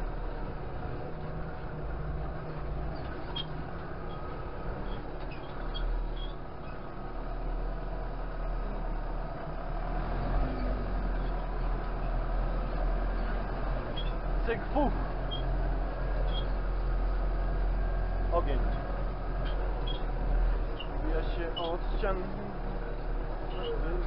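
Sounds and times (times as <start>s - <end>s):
tractor engine running: 0.0s - 24.0s.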